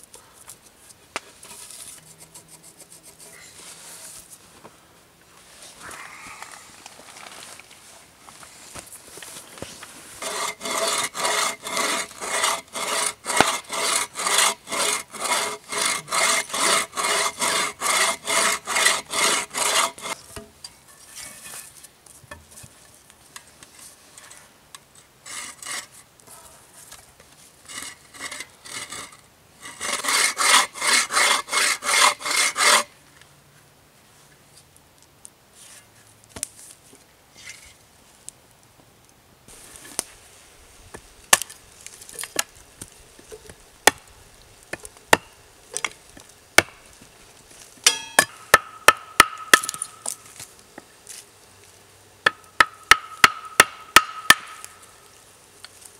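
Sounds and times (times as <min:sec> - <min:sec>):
hand saw cutting log: 0:10.2 - 0:20.2, 0:25.3 - 0:26.0, 0:27.7 - 0:32.9, 0:52.6 - 0:54.7.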